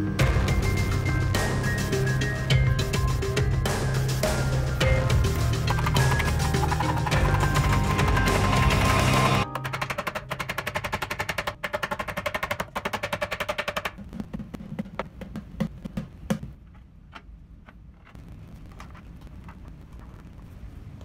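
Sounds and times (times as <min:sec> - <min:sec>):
wooden cabinet parts clicking: 0:05.7 - 0:14.0
taps and dull knocks: 0:05.7 - 0:18.2.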